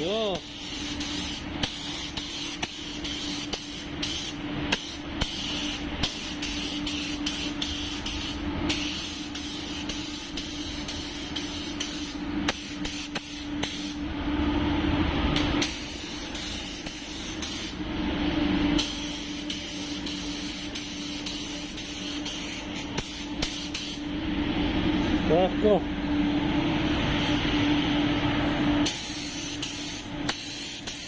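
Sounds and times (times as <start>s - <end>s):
steady low hum: 0.0s - 31.0s
spray gun hissing: 0.4s - 13.9s, 15.6s - 17.8s, 18.8s - 24.0s.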